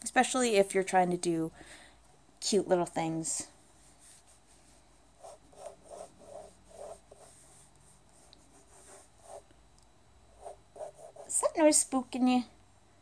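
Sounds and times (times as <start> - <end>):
pencil scratching on paper: 5.2 - 9.5, 10.4 - 11.4.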